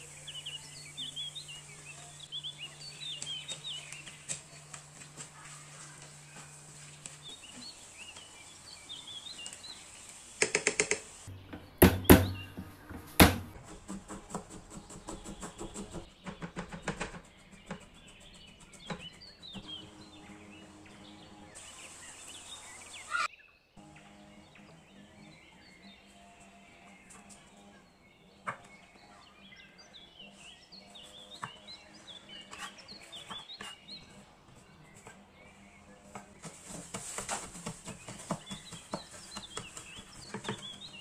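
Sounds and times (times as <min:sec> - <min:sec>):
birds chirping: 0:00.0 - 0:41.0
food preparation knocks and clicks: 0:10.4 - 0:19.7.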